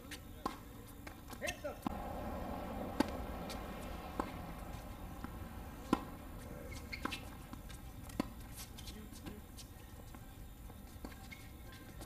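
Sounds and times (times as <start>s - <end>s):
tennis ball hit by racket: 0.4s - 9.4s.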